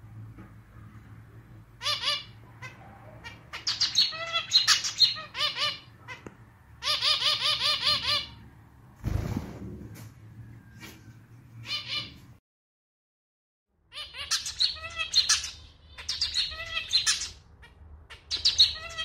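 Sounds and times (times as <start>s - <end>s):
finch singing: 1.8s - 8.4s, 13.9s - 19.0s.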